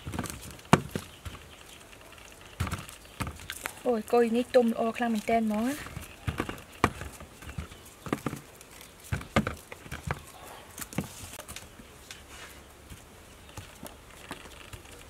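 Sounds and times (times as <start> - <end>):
fruits knocking in plastic bowl: 0.0 - 1.5, 2.6 - 3.6, 5.8 - 11.1.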